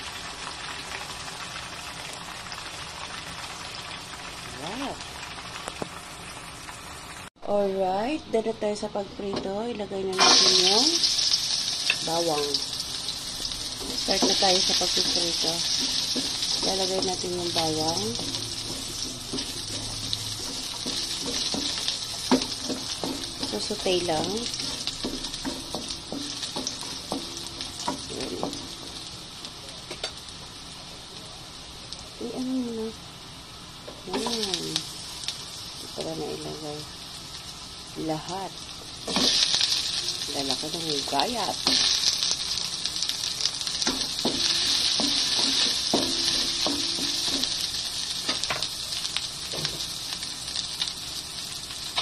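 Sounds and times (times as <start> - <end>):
garlic sizzling in oil: 0.0 - 52.0
spatula scraping and knocking pan: 13.8 - 29.1, 43.8 - 48.7.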